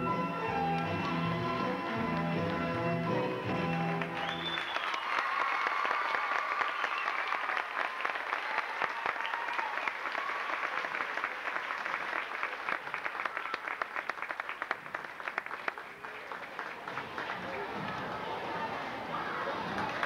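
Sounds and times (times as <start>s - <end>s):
crowd applauding: 0.6s - 20.0s.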